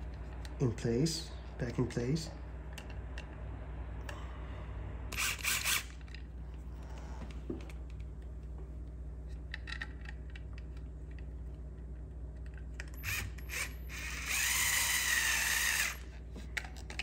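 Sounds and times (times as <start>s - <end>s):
steady low hum: 0.0s - 17.0s
light clicks of handling parts: 6.0s - 13.0s.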